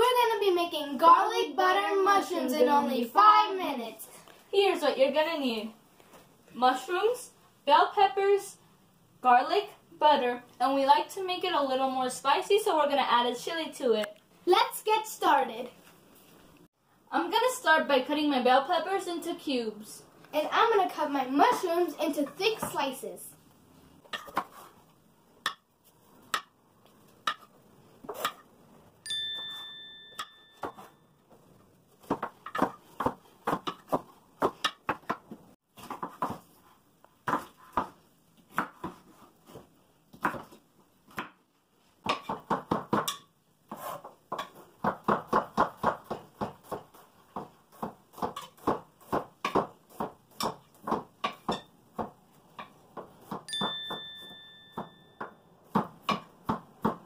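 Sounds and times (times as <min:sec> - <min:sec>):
ringing ding: 0:29.0 - 0:31.1, 0:53.5 - 0:55.4.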